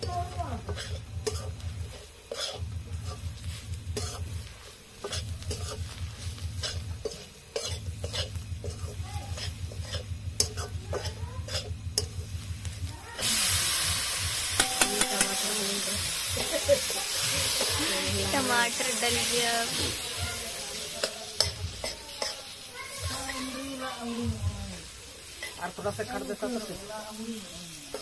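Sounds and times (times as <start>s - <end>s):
spatula scraping pan: 0.0s - 12.2s
loud sizzling hiss in oil: 0.0s - 28.0s
low sizzle: 0.0s - 28.0s
spatula clicking against pan: 14.6s - 15.4s, 21.0s - 22.4s.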